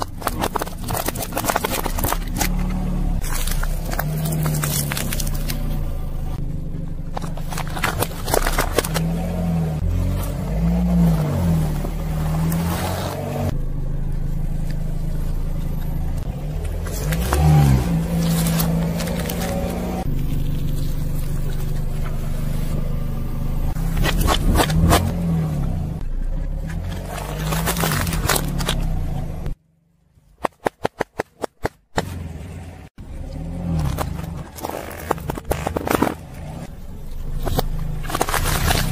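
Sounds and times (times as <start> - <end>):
tyre crushing food: 0.0 - 5.7, 26.7 - 29.0, 37.4 - 38.9
tyre crushing objects on asphalt: 0.0 - 6.4, 7.1 - 13.6, 16.3 - 22.5, 23.7 - 25.8, 26.5 - 29.5, 33.3 - 38.9
car engine running: 0.0 - 30.2, 31.4 - 38.9.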